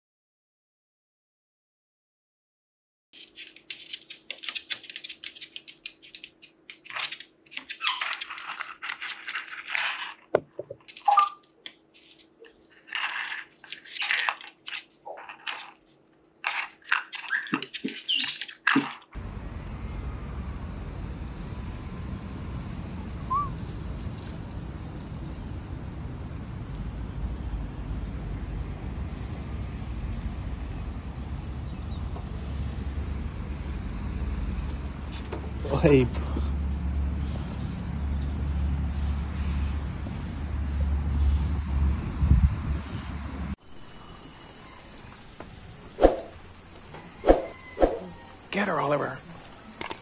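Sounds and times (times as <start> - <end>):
parrots chirping and squawking: 7.6 - 8.8, 17.0 - 18.8
low rushing outdoor background: 19.2 - 50.0.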